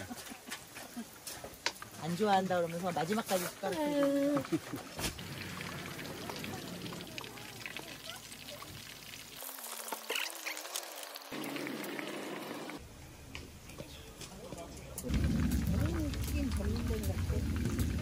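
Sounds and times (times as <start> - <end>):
food deep-frying in oil: 5.2 - 12.8.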